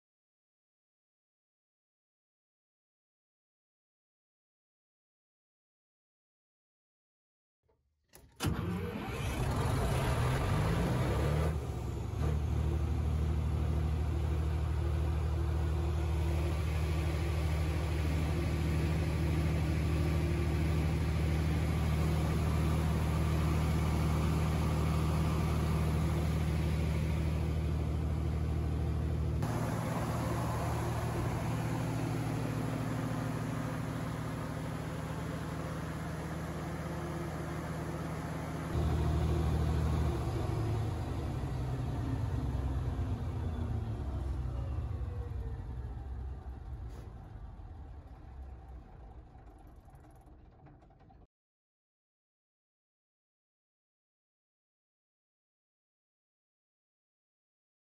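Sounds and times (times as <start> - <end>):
diesel generator droning: 8.2 - 51.3.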